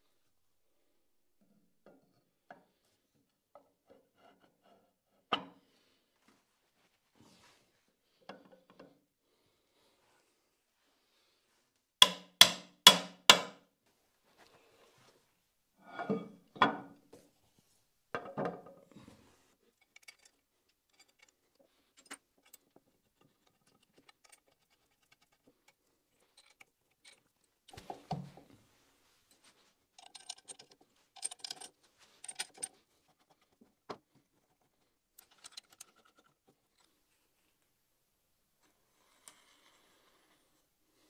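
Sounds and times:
steel machine parts handled: 19.8 - 21.4, 29.3 - 33.5.

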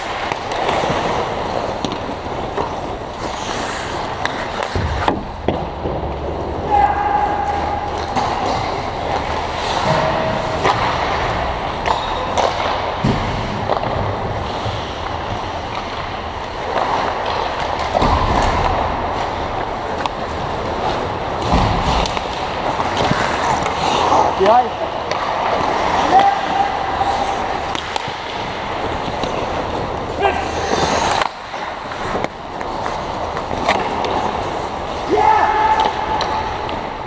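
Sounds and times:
hockey sticks and puck clacking: 0.0 - 37.0
skates hissing on ice: 2.7 - 5.0, 30.2 - 33.1.

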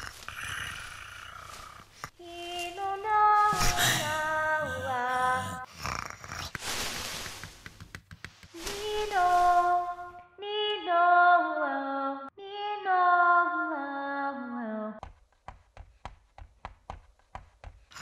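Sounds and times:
sharp clicks or taps: 7.2 - 8.6.

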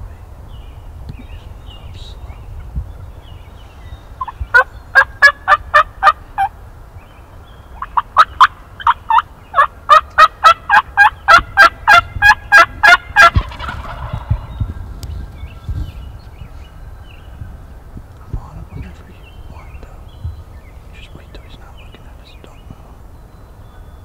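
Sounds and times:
turkey yelping: 4.2 - 6.5, 7.8 - 14.5.

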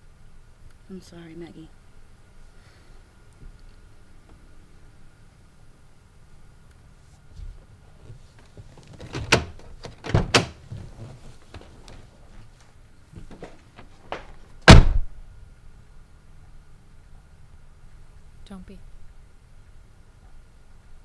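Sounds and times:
door latch clicks and knocks: 9.0 - 10.6
door slamming shut: 9.0 - 10.7, 13.2 - 15.1.

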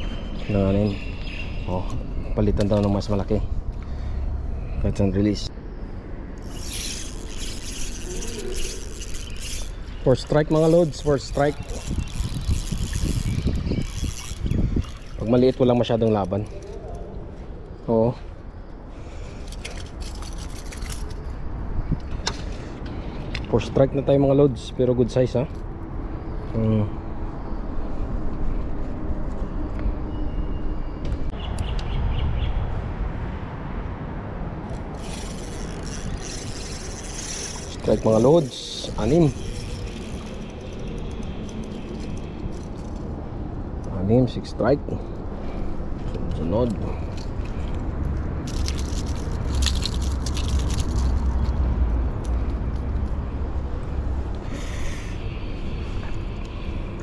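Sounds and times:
traffic rumble overhead: 0.0 - 57.0
small clicks and rattles: 47.1 - 51.6.

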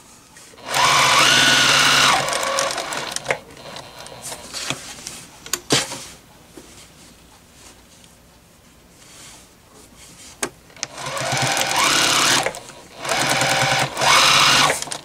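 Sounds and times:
sewing machine stitching: 0.6 - 4.4, 10.8 - 15.0.

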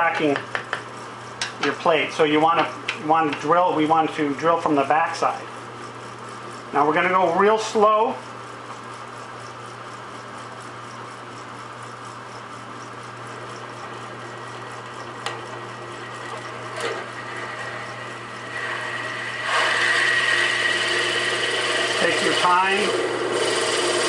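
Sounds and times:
drill press motor humming: 4.7 - 24.0
drill bit cutting plastic: 13.4 - 24.0.

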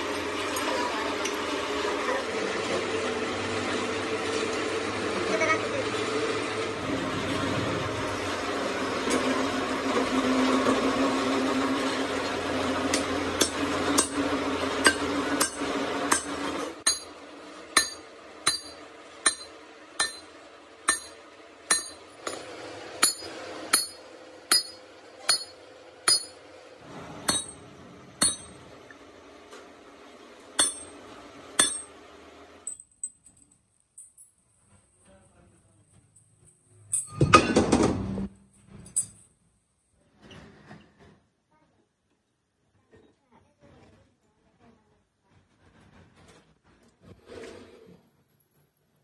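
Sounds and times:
machine hum: 0.0 - 32.7
hammer striking steel: 12.9 - 17.2, 17.8 - 26.5, 27.2 - 28.6, 30.6 - 31.0, 31.6 - 32.0.

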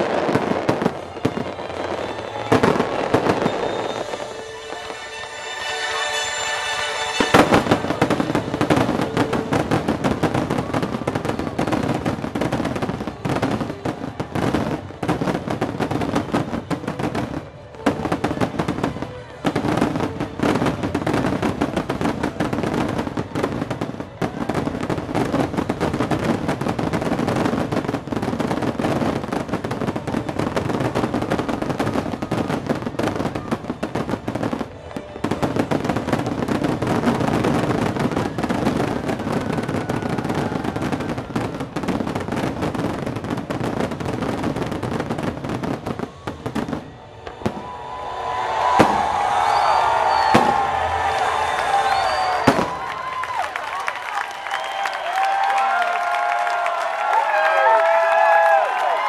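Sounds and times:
fireworks bursting and crackling: 0.0 - 59.0.

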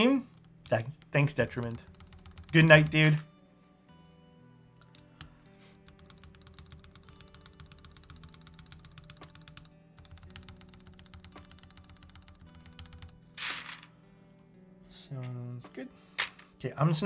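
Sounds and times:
background music: 0.0 - 17.0
rapid mechanical keyboard typing: 0.6 - 3.2, 5.8 - 13.2.

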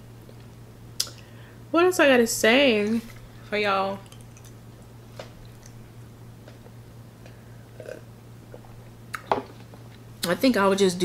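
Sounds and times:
steady low hum: 0.0 - 11.0
swallowing and mouth sounds: 7.2 - 9.3.

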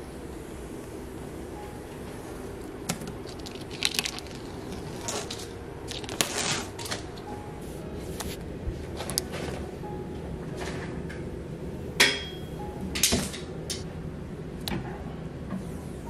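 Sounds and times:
plastic film peeling off: 2.9 - 7.2.

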